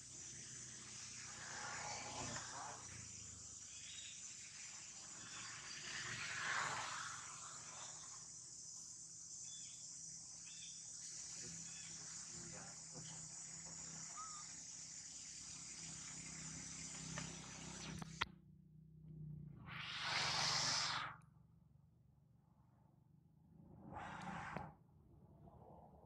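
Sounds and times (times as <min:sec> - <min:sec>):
insect chorus chirring: 0:00.0 - 0:18.2.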